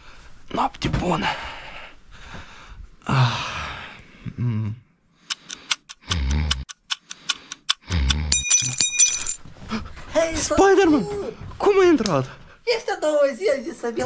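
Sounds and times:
alarm bell ringing: 0:08.4 - 0:09.4.

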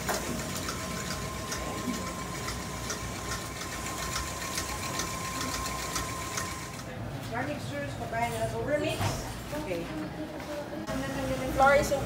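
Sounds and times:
beater ticking in steel bowl: 0:00.0 - 0:06.7
stand mixer motor humming: 0:00.0 - 0:06.8.

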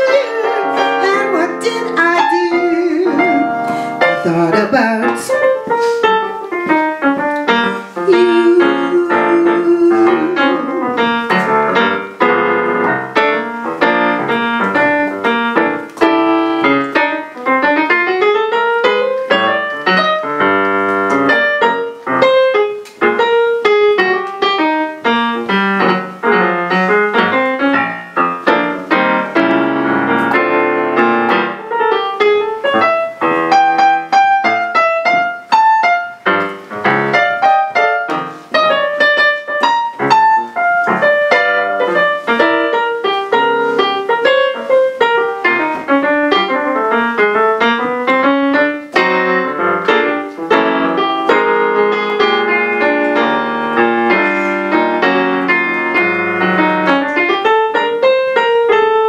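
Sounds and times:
solo piano: 0:00.0 - 0:59.0.

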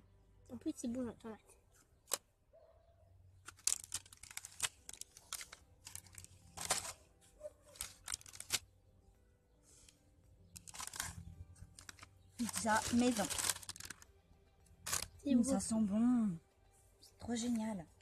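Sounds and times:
crinkling and rustling: 0:03.4 - 0:08.7, 0:09.8 - 0:15.7.

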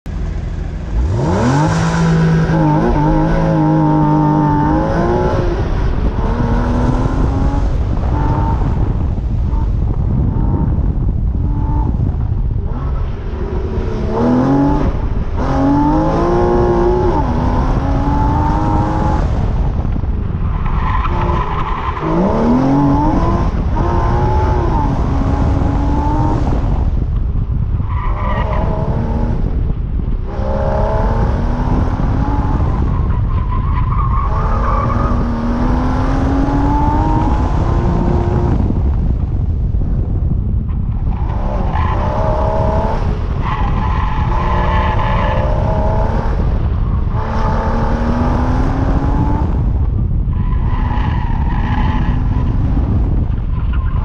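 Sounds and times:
car engine revving: 0:00.1 - 0:40.2, 0:40.9 - 0:54.0
tires skidding and squealing: 0:19.9 - 0:26.4, 0:27.8 - 0:29.3, 0:30.4 - 0:38.6, 0:40.8 - 0:48.4, 0:50.2 - 0:54.0.

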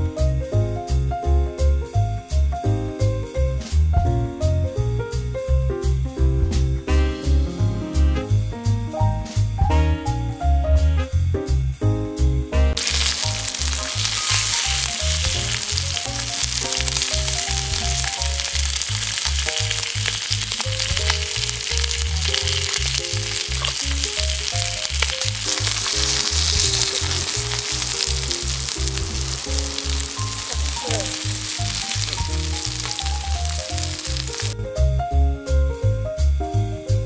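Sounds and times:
steak sizzling on a hot plate: 0:12.8 - 0:34.6.

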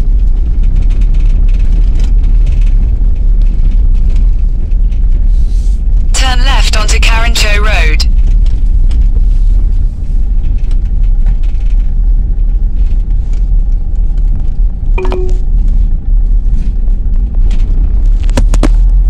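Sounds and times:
short sharp tone: 0:15.0 - 0:15.4.

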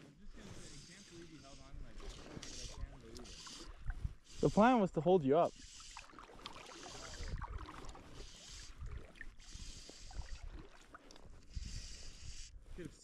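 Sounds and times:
river water sloshing and lapping: 0:00.4 - 0:12.8
hiss: 0:02.4 - 0:04.6, 0:05.5 - 0:07.4, 0:08.1 - 0:08.8, 0:09.4 - 0:10.4, 0:11.6 - 0:12.5.

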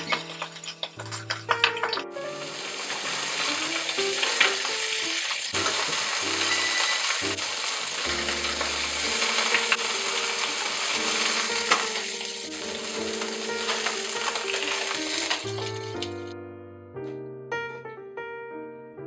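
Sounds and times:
utensils clicking against pan: 0:00.0 - 0:02.0, 0:03.6 - 0:04.8
fish sizzling in hot oil: 0:00.0 - 0:16.2
soft background music: 0:00.0 - 0:19.0.

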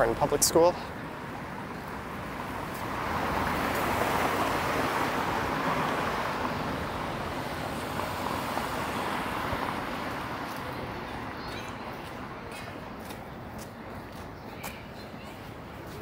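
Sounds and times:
passing vehicle tyre noise: 0:01.0 - 0:11.4.

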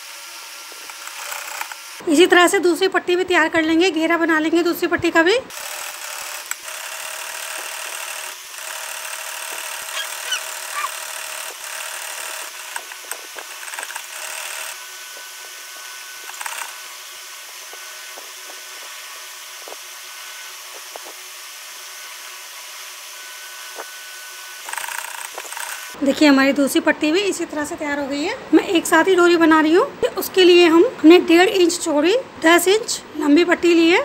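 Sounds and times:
sewing machine stitching: 0:05.5 - 0:14.8.

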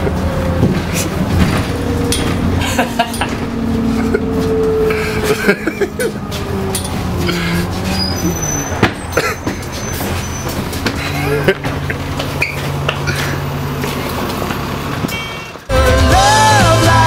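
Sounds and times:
knocks and rattles: 0:00.0 - 0:08.0, 0:08.6 - 0:15.2
bus engine humming and whining: 0:00.0 - 0:17.0.

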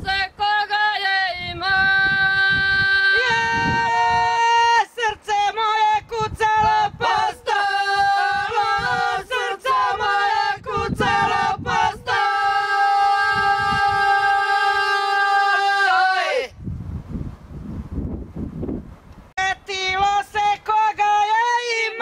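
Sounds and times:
unaccompanied group folk singing: 0:00.0 - 0:16.5.

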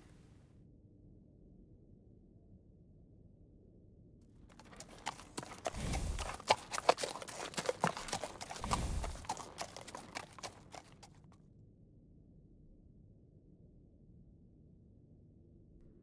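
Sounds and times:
horse hooves knocking on ground: 0:04.5 - 0:11.2.

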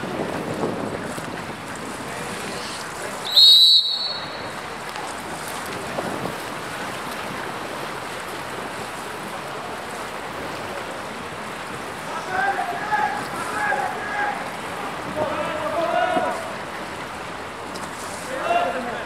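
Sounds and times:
splashing water: 0:00.0 - 0:19.0
referee's whistle blast: 0:03.3 - 0:04.5.

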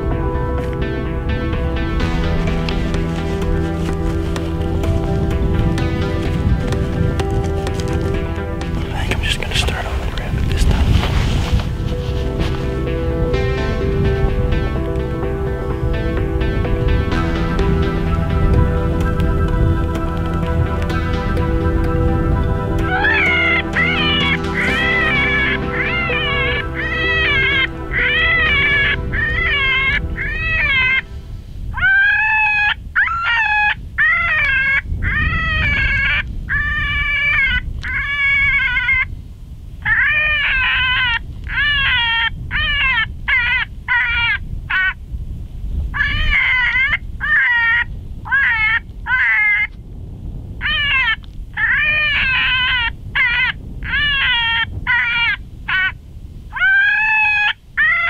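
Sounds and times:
wind rumble on microphone: 0:00.0 - 0:58.0
electronic animal distress call: 0:22.8 - 0:31.1, 0:50.6 - 0:58.0.

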